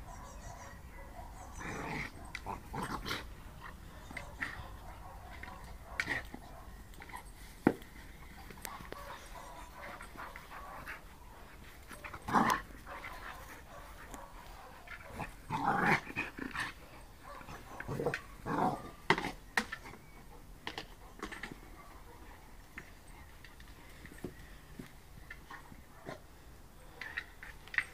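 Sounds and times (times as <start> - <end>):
dog growling: 1.4 - 5.2, 12.0 - 13.8, 15.0 - 19.0.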